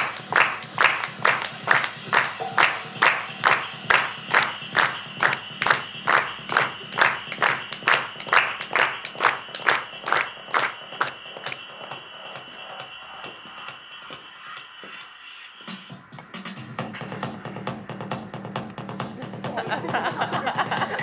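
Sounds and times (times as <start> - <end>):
steady high tone: 0.0 - 15.9
rhythmic hand claps: 0.0 - 21.0.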